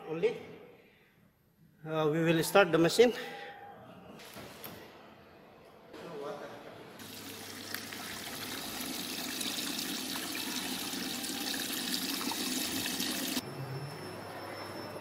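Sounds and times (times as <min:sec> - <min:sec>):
water rushing into washing machine: 0:07.0 - 0:13.4.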